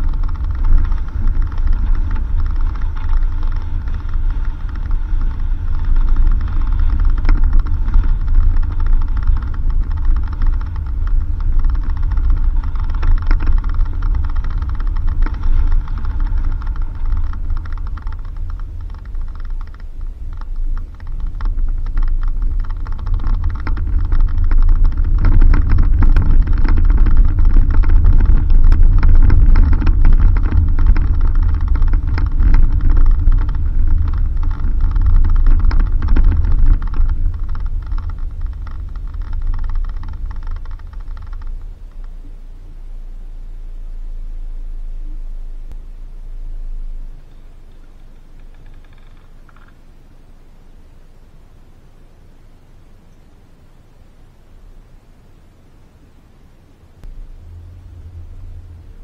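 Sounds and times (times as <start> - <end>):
knocks and rattles: 0.0 - 42.4
car rumbling on dirt road: 0.0 - 52.9, 56.6 - 59.0.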